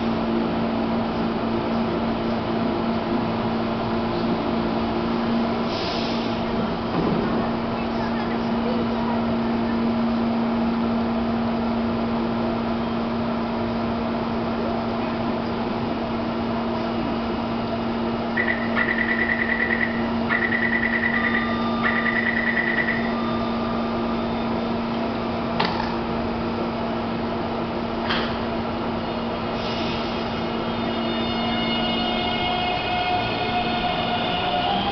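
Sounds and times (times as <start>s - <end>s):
train humming at platform: 0.0s - 34.9s
train doors knocking shut: 6.8s - 7.6s, 25.6s - 26.1s.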